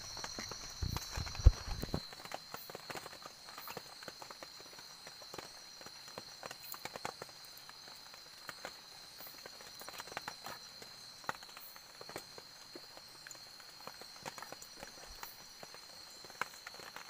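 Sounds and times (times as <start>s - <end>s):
high-pitched insect drone: 0.0s - 2.1s.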